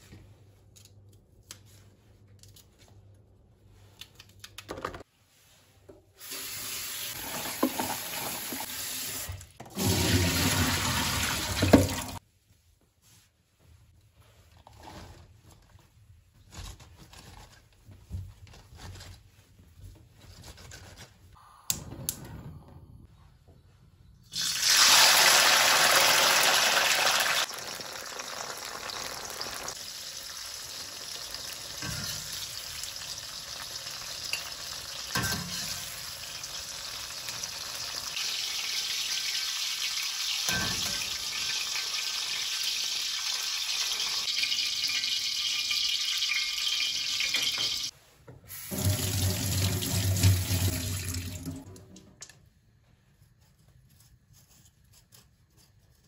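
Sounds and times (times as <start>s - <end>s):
peppers sizzling in hot oil: 24.3s - 47.9s.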